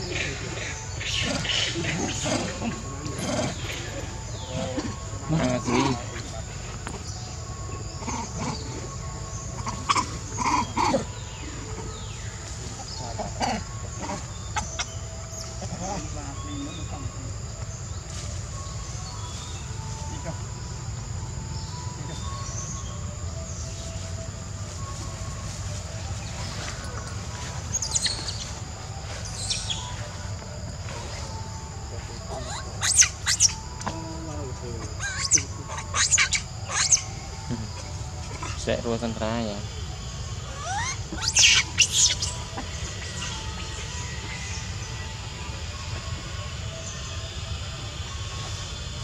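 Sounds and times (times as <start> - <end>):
monkey squealing: 0.0 - 6.2, 8.0 - 8.8, 9.4 - 11.8, 12.7 - 17.0, 27.7 - 28.5, 32.2 - 38.7, 40.4 - 44.5
outdoor background noise: 0.0 - 49.0.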